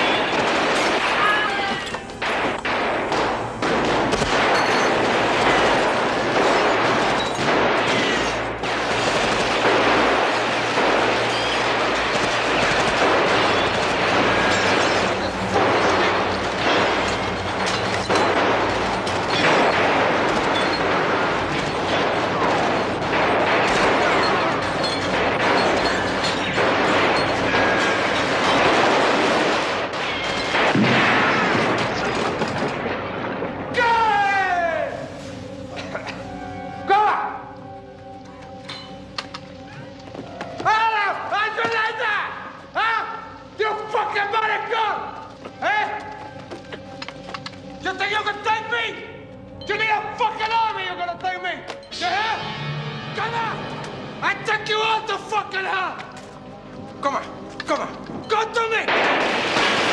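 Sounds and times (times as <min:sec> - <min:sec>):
automatic gunfire: 0:02.2 - 0:17.3.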